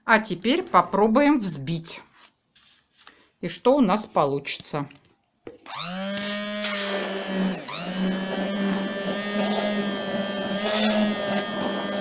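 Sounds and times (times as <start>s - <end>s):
hand blender whining: 5.6s - 12.0s.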